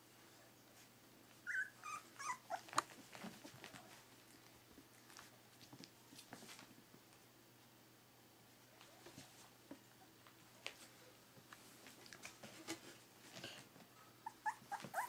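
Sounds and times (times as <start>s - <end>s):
puppies whimpering squeaks: 1.5s - 2.8s, 14.2s - 15.0s.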